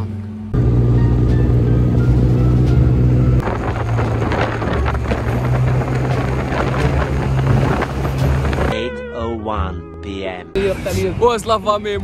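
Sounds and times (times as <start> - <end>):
wind buffeting microphone: 3.4 - 8.8.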